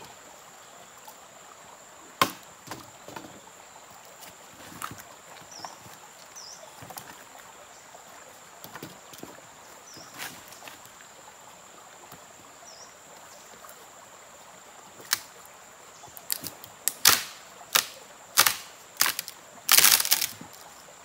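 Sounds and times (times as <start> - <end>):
wooden branch scraping on rocks: 16.2 - 20.7
footsteps on loose stones: 18.4 - 20.7.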